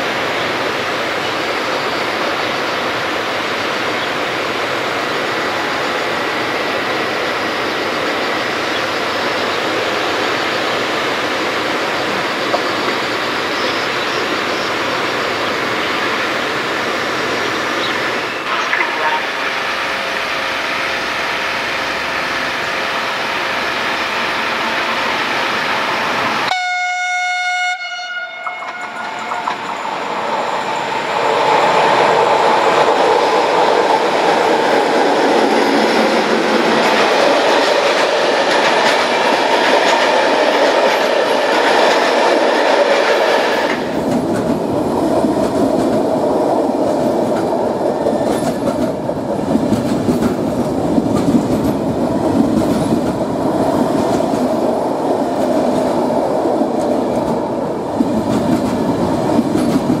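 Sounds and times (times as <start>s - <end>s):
train rumble: 0.0s - 60.0s
train horn: 18.4s - 21.2s, 26.5s - 29.5s.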